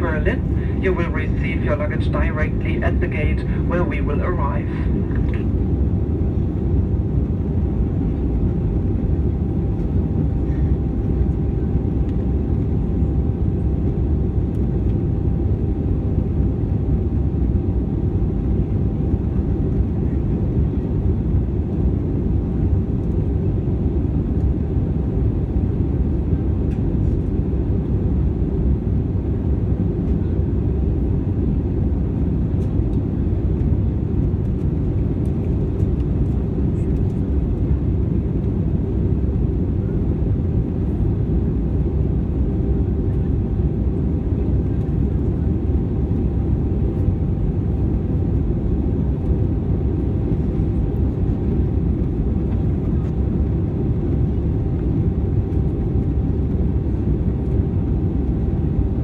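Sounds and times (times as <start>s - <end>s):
faint steady hum: 0.0s - 27.8s
aircraft cabin engine rush: 0.0s - 59.0s.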